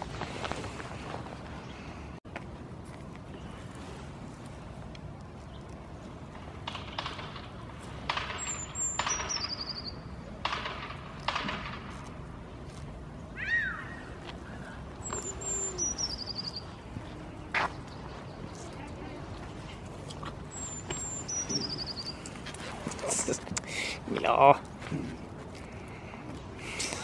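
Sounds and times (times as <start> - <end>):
songbird descending trill: 15.0 - 16.7.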